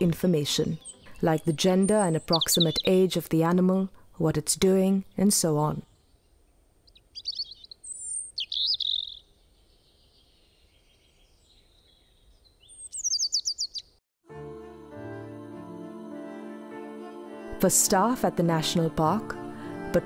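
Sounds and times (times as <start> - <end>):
birds chirping: 0.0 - 3.2, 4.8 - 14.0
soft background music: 0.0 - 3.6, 14.3 - 20.0.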